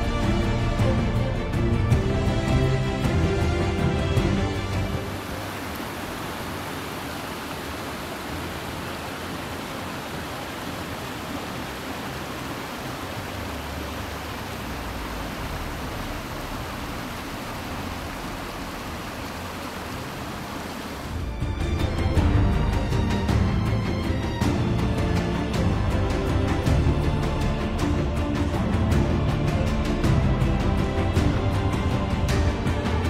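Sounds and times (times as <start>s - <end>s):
stream running over rocks: 4.5s - 21.4s.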